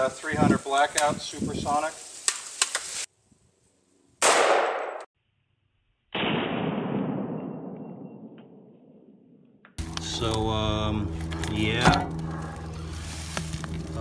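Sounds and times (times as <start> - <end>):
rifle shots hitting steel plate: 4.2 - 5.0.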